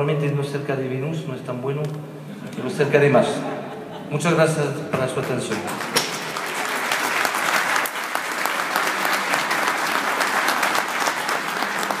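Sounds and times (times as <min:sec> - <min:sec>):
audience applauding: 0:05.2 - 0:12.0
close hand claps: 0:05.2 - 0:12.0.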